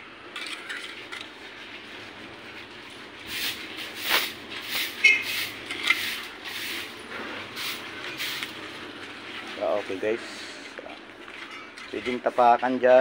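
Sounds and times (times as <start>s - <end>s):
trowel scraping mortar: 0.4s - 8.6s.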